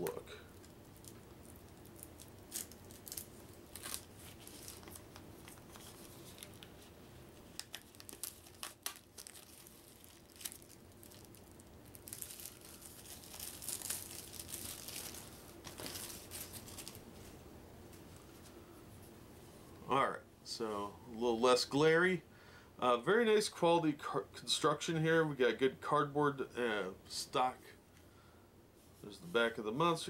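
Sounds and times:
plastic wrapping crinkling: 0.0s - 18.1s.

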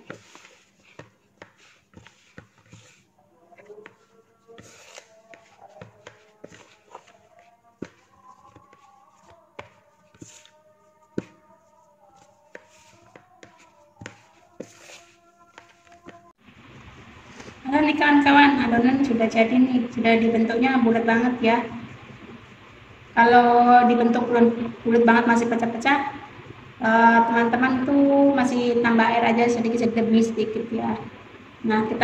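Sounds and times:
hands kneading dough in a bowl: 0.0s - 17.6s.

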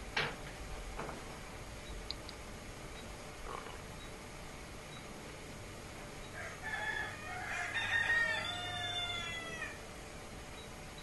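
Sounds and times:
rooster crowing: 6.3s - 9.8s.

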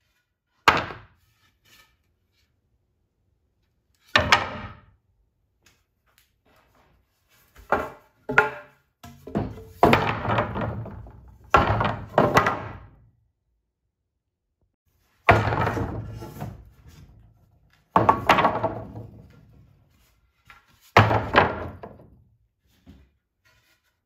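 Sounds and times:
wooden boards dropped on stack: 0.5s - 1.3s, 4.0s - 4.9s, 7.5s - 13.0s, 15.1s - 19.6s, 20.4s - 22.2s.

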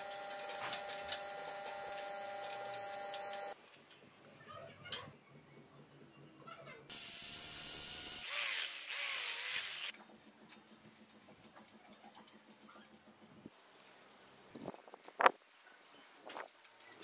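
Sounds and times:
power tool motor whining: 0.0s - 3.6s, 6.9s - 9.9s.

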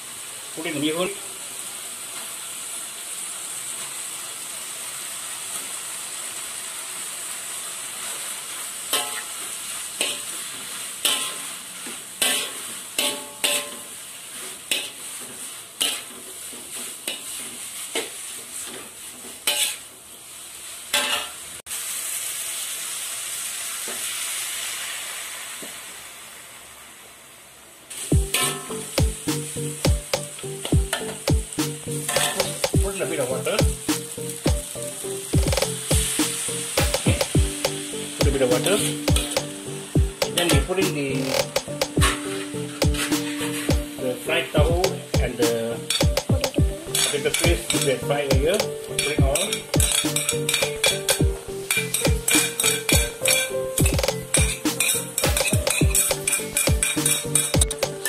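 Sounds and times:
noodles sizzling in a wok: 0.0s - 46.1s, 46.7s - 58.0s
spatula scraping a wok: 8.0s - 21.5s, 28.2s - 36.5s, 41.4s - 44.0s, 46.8s - 48.0s, 48.9s - 57.6s.

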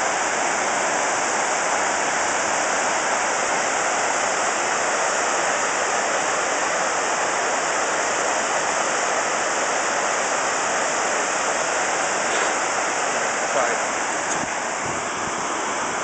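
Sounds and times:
waterfall rushing into basin: 0.0s - 16.0s.

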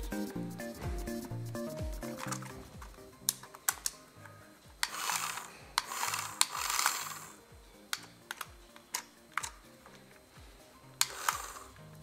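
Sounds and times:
sharp plastic clicks: 3.3s - 4.0s, 7.9s - 10.0s
toy car motor whirring: 4.8s - 7.4s, 11.0s - 11.8s.

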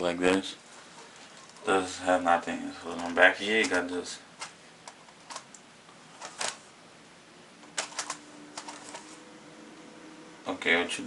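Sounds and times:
plastic keyboard clicks: 7.7s - 9.0s.

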